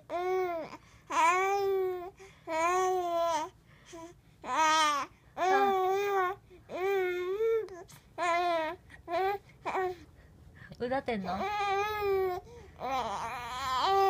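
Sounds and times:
baby cooing and babbling: 0:00.0 - 0:10.0, 0:11.4 - 0:14.0.

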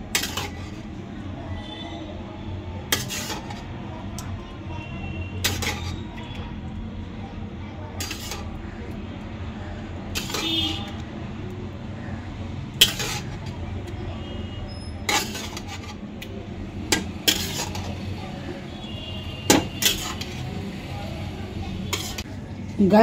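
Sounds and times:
metal spoon clinking on dish: 0:05.4 - 0:06.0, 0:10.2 - 0:10.4, 0:15.1 - 0:15.9, 0:16.9 - 0:18.0, 0:19.5 - 0:20.4.

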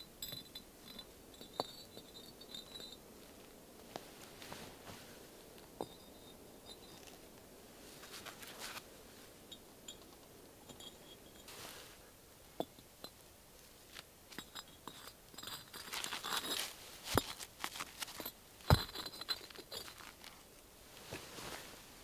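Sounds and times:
bricks clinking and knocking: 0:00.2 - 0:03.0, 0:14.3 - 0:20.4
gloved hands scraping and rustling: 0:05.8 - 0:08.9, 0:13.9 - 0:22.0.

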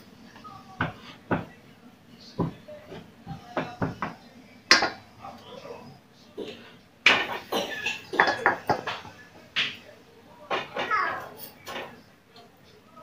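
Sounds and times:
kitchen utensils knocking: 0:03.6 - 0:05.0, 0:07.1 - 0:12.1.

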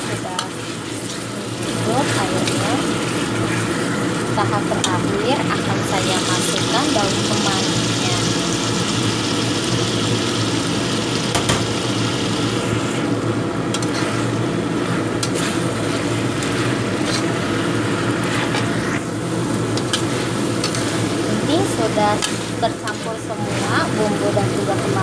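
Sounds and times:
chicken sizzling in a wok: 0:00.0 - 0:25.0.

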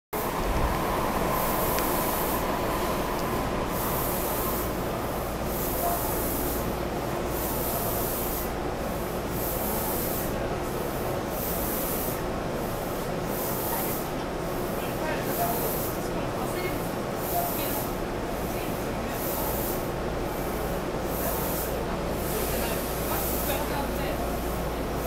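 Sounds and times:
high hiss: 0:00.2 - 0:06.5
train equipment hiss and hum: 0:00.2 - 0:25.0.

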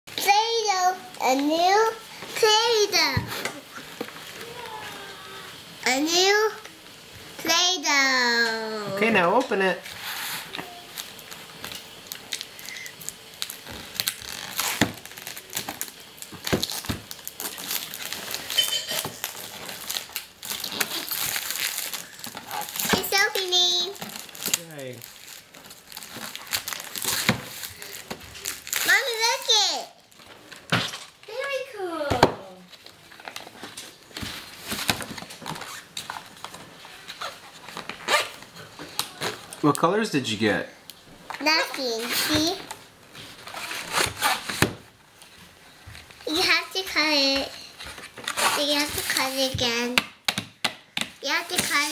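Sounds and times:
shrink-wrapped cardboard crinkling: 0:08.4 - 0:39.8, 0:41.3 - 0:49.9.

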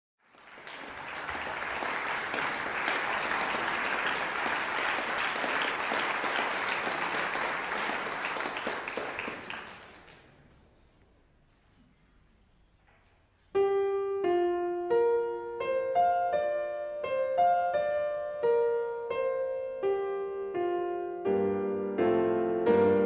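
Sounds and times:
audience applauding: 0:00.2 - 0:10.4.

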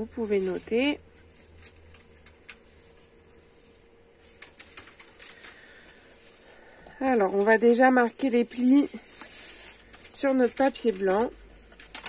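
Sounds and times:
paper taps and rustles: 0:04.2 - 0:06.0, 0:09.1 - 0:12.0.

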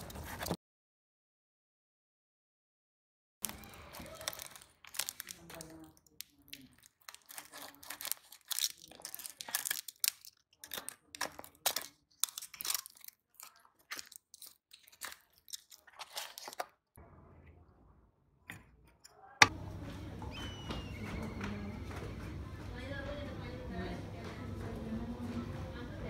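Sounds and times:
knife slitting plastic and tape: 0:07.0 - 0:16.7.

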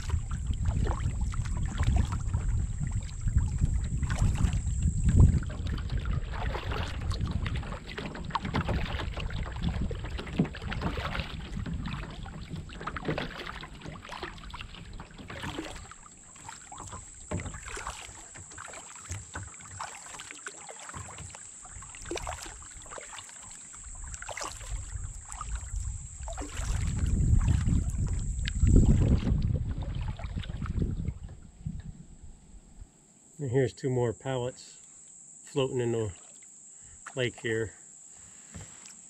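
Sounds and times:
wind on microphone: 0:00.0 - 0:12.8, 0:23.9 - 0:32.8
water dripping off paddle: 0:00.0 - 0:31.9
paddle splashing in water: 0:00.0 - 0:32.8, 0:36.1 - 0:37.3, 0:38.2 - 0:39.0.

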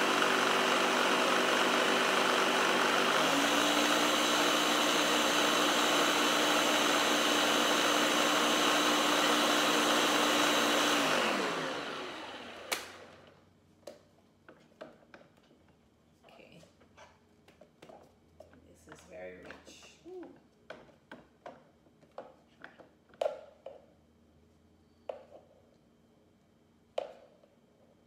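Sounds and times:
blender running: 0:00.0 - 0:13.3.

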